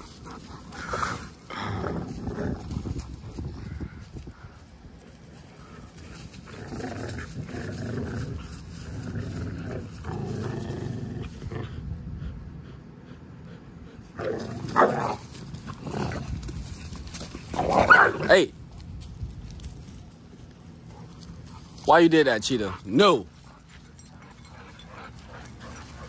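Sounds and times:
dogs growling: 0.0 - 3.1, 5.6 - 12.0, 13.5 - 18.3, 22.7 - 26.0
sharp dog outburst: 17.7 - 18.3.

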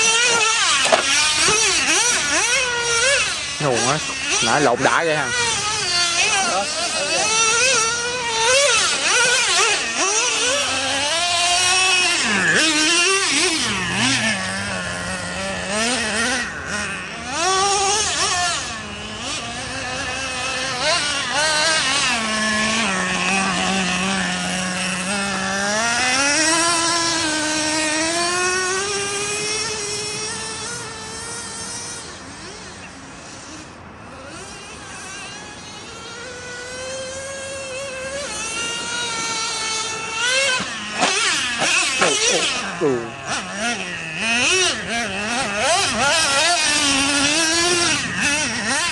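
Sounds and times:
small engine revving: 0.0 - 48.9.

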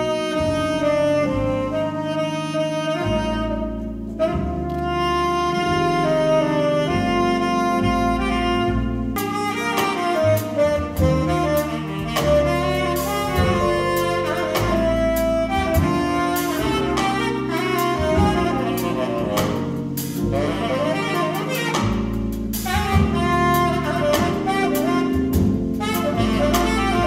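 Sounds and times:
double bass: 0.0 - 27.0
tenor saxophone jazz line: 0.0 - 27.0
drums and cymbals: 8.3 - 27.0.

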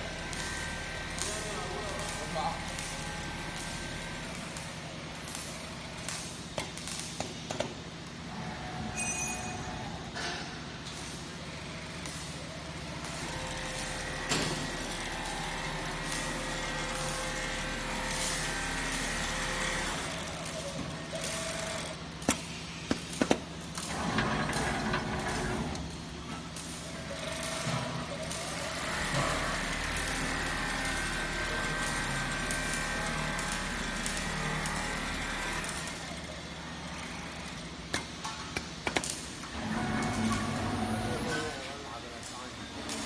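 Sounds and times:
sharp machine clicks: 11.8 - 25.8
quilting machine humming: 12.4 - 22.2, 23.9 - 25.9.

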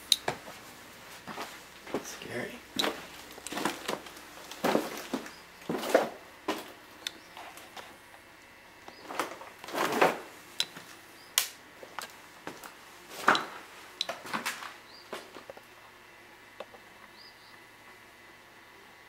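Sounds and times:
footsteps crunching over debris: 0.3 - 6.8, 11.8 - 15.5.

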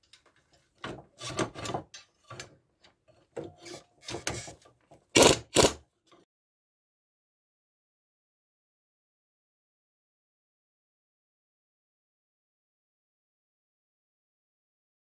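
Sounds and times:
metal scraping and knocking on spring: 0.0 - 5.8.

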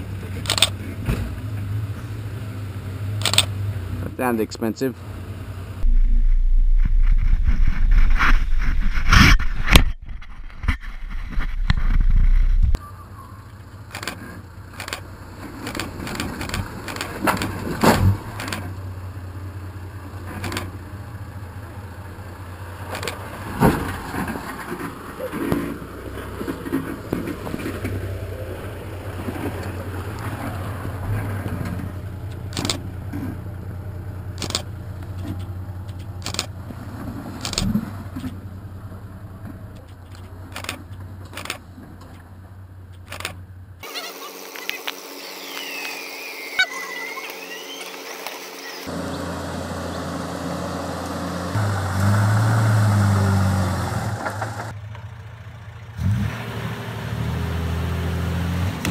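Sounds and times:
engine labouring uphill: 0.0 - 7.8, 10.0 - 58.9.

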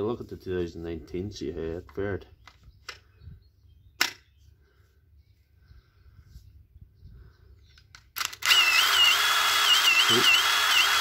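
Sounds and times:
impact driver motor whining: 8.2 - 11.0.

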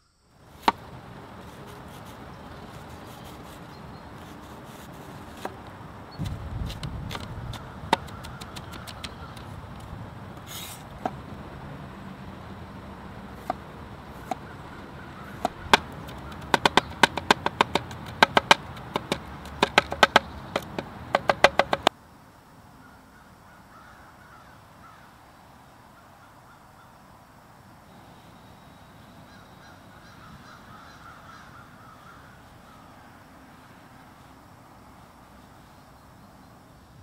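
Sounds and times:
cleaver chopping on wooden board: 4.2 - 5.6, 6.2 - 9.4, 13.4 - 13.6, 14.2 - 14.5, 15.3 - 21.9.

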